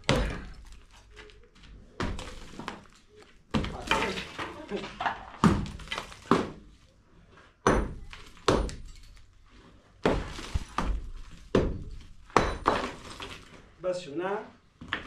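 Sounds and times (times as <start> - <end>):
hammer knocking on masonry: 7.6 - 8.8, 10.0 - 12.9.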